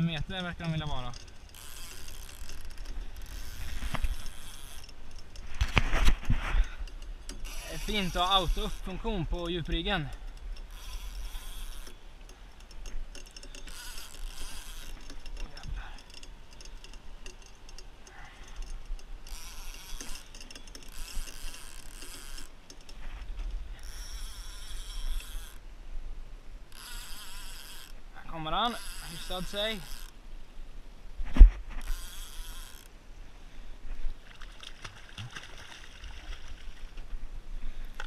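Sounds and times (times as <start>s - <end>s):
fishing reel ratcheting: 0.1s - 23.0s, 23.8s - 25.6s, 26.7s - 30.2s, 31.8s - 33.0s.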